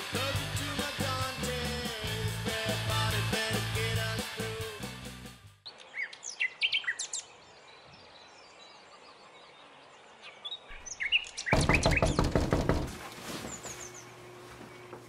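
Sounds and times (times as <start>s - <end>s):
faint outdoor background: 5.4s - 15.0s
birds chirping: 5.6s - 15.0s
knocking on a door: 11.5s - 13.0s.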